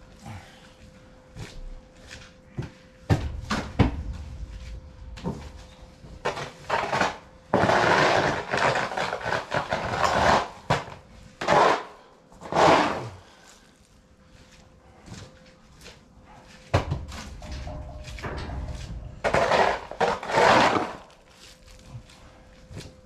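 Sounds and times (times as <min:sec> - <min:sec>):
rough scraping strokes: 0:17.4 - 0:21.7.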